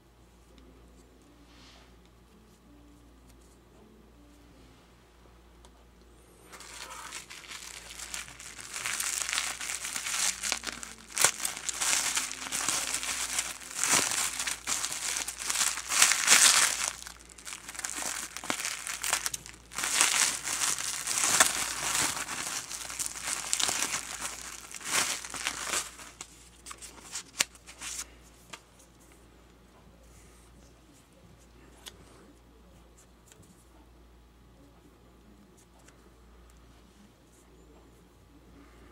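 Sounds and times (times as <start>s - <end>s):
bubble wrap crinkling and crackling: 6.4s - 28.2s.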